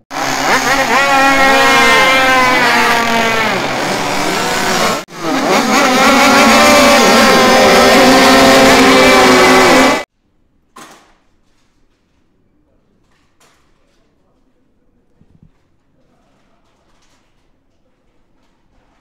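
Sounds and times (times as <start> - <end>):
motorcycle engines revving: 0.1 - 10.1.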